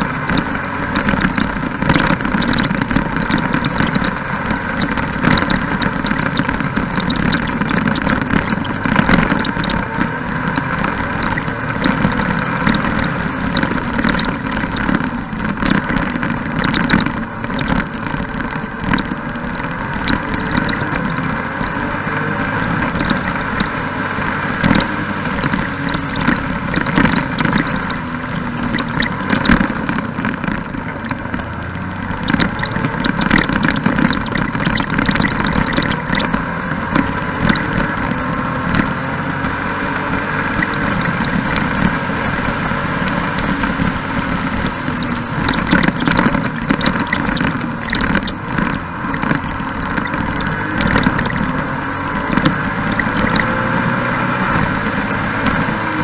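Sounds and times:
engine running steadily: 0.0 - 56.0
wind and road noise: 0.0 - 56.0.

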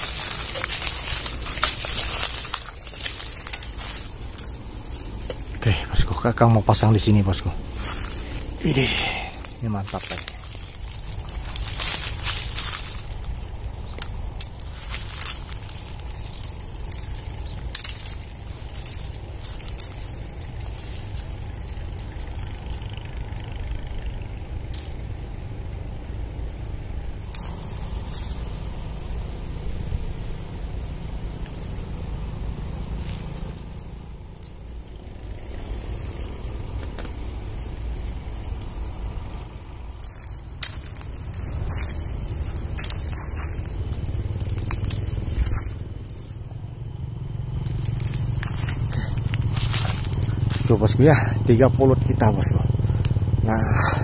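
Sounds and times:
leafy branches rustling: 0.0 - 54.0
low rumble: 0.0 - 54.0
twigs crackling: 0.0 - 54.0
faint bird chirps: 34.3 - 40.4.

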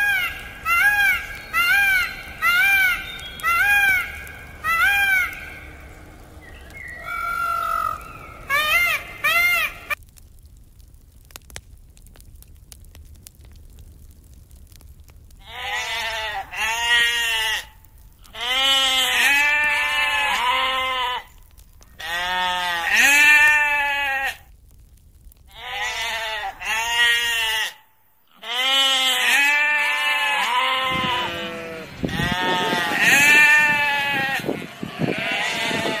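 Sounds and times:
sheep bleating: 15.4 - 21.3, 22.0 - 24.4, 25.5 - 36.0.

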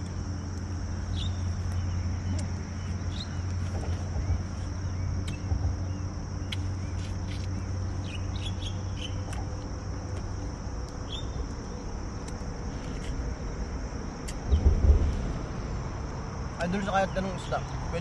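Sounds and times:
high-pitched insect trill: 0.0 - 18.0
bird chirps: 1.1 - 9.4, 11.0 - 11.4
low rumble: 7.6 - 18.0
low bump: 14.4 - 16.5.

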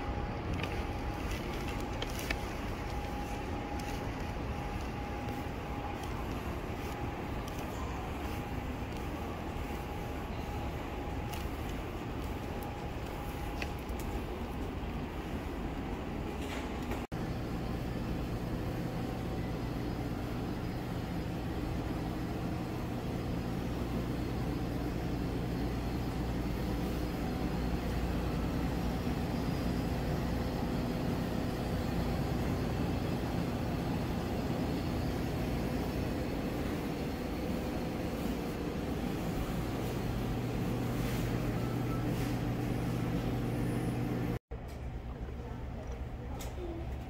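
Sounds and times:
airliner cabin drone: 0.0 - 47.0.

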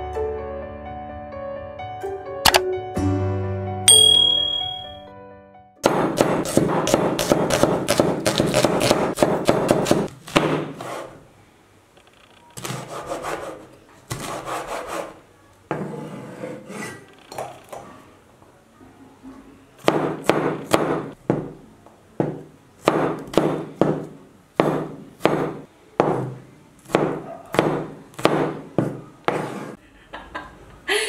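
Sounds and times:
cleaver chopping on wooden board: 5.9 - 10.7, 22.2 - 26.3, 26.9 - 29.5.

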